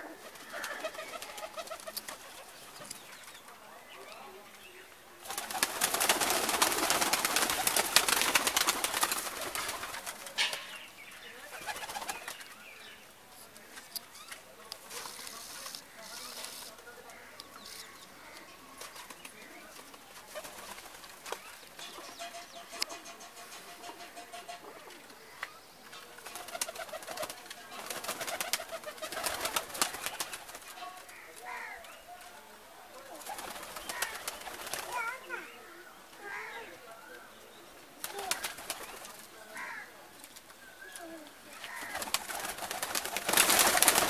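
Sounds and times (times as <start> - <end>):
pigeons cooing: 0.0 - 3.0
pigeons flapping wings: 0.1 - 3.4, 5.2 - 10.8, 11.4 - 12.5, 18.8 - 22.2, 26.2 - 31.7, 33.1 - 35.4, 38.0 - 40.4, 41.6 - 44.0
sharp clicks and wing flaps: 0.4 - 3.0, 5.2 - 10.4, 38.0 - 39.3, 41.7 - 44.0.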